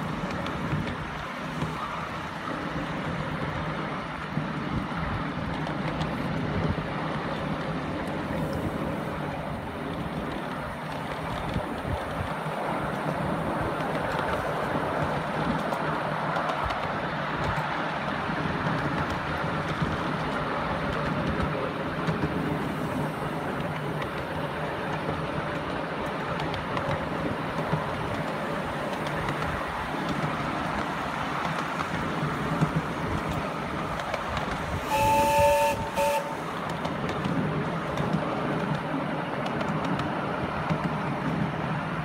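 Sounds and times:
miniature train running on track: 0.0s - 42.0s
locomotive whistle: 34.8s - 36.6s.

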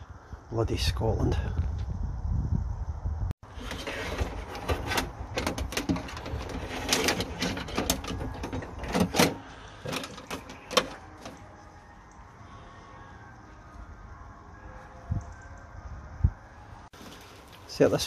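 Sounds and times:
handling clicks and knocks: 3.6s - 11.6s.

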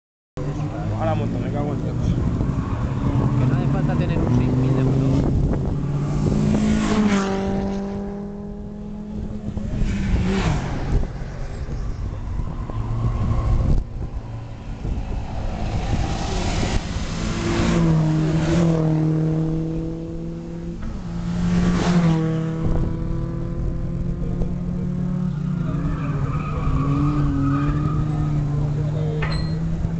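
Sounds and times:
race car engines passing: 0.4s - 29.9s
tyre squeal and skidding: 25.3s - 29.7s.

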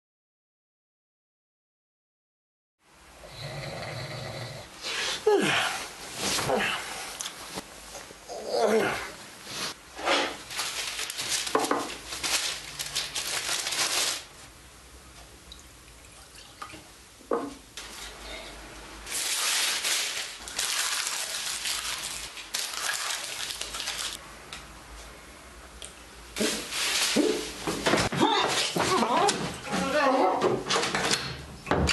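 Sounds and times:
liquid running and splashing: 19.2s - 24.2s.

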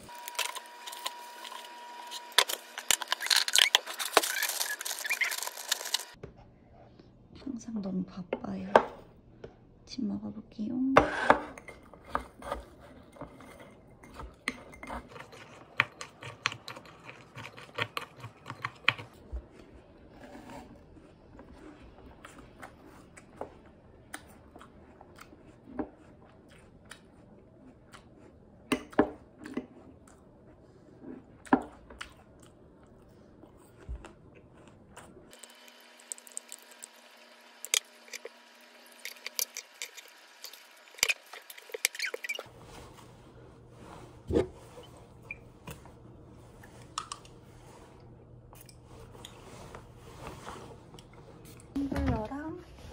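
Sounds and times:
chewing crisp apple: 14.9s - 28.4s, 29.2s - 42.4s.

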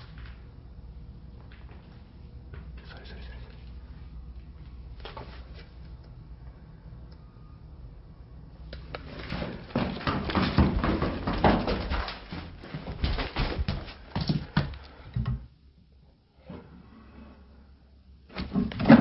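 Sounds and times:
knocks and scuffs from above: 9.0s - 14.8s.

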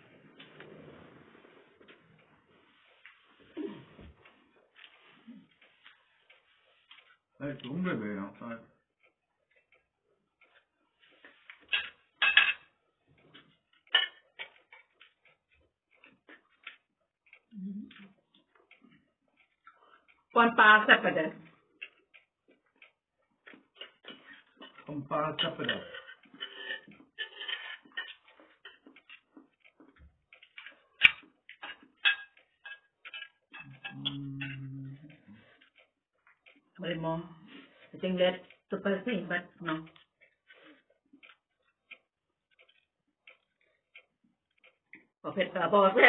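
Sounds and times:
spoons clinking on ceramic plates: 11.5s - 15.0s, 23.8s - 29.3s, 30.4s - 34.6s
mouth eating sounds: 17.2s - 19.8s, 33.6s - 35.8s.

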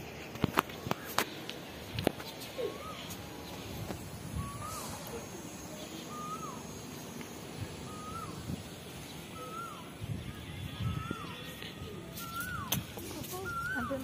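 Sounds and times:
bird whistling falling note: 7.9s - 8.4s, 12.2s - 14.0s.

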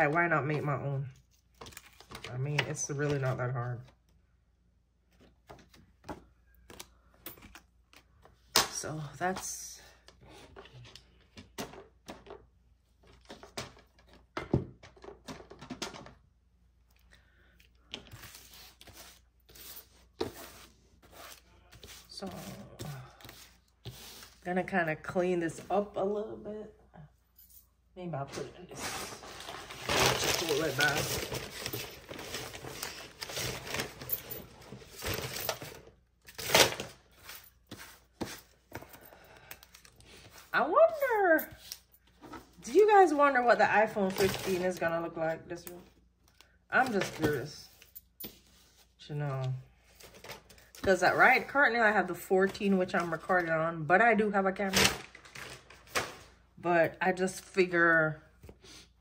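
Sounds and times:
plastic strips rustling and clattering: 28.8s - 38.4s, 54.8s - 56.4s
plastic sheets rustling and clicking: 54.7s - 56.3s.

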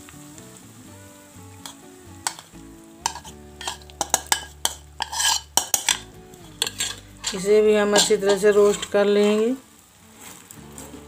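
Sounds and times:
steel spoon scraping a plate: 1.6s - 9.0s.

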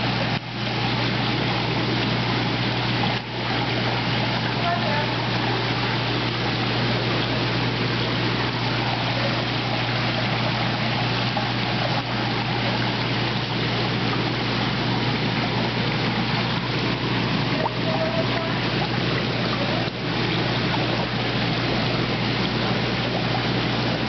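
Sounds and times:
low steady hum: 0.0s - 24.0s
pond water rushing: 0.0s - 24.0s.

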